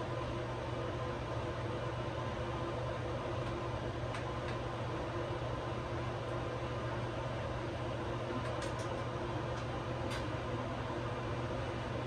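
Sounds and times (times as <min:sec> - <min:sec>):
electric fan hum: 0:00.0 - 0:12.0.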